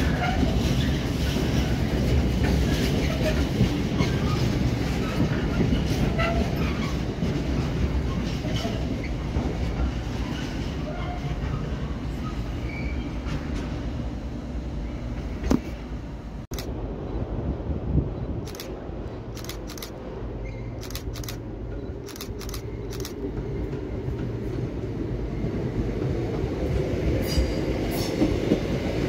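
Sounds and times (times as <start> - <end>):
freight train wheels clicking: 18.4 - 24.8.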